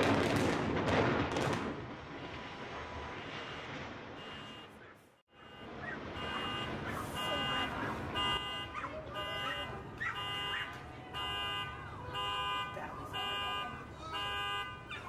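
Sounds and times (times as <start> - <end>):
building implosion rumble: 0.0 - 4.4
car alarm tones: 3.1 - 15.0.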